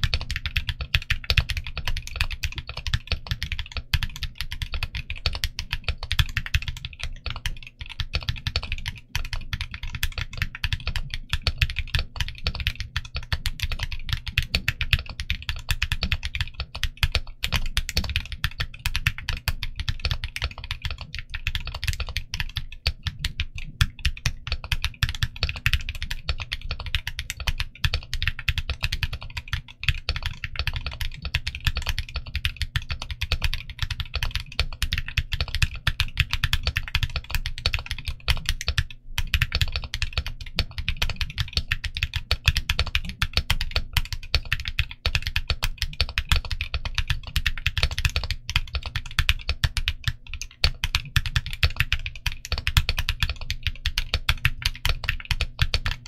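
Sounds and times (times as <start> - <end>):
fast typing on mechanical keyboard: 0.0 - 56.0.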